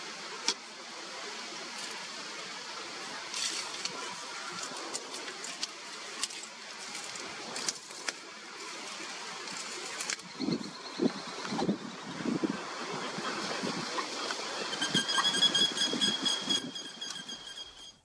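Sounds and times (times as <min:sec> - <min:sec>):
steady outdoor hiss: 0:00.0 - 0:18.0
dry fronds crackling and snapping: 0:03.2 - 0:10.4.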